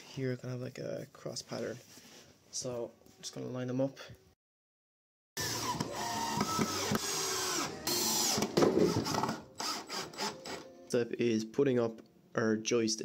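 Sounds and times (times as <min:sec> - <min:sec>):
cordless drill driving screw into wood: 0:05.4 - 0:10.6.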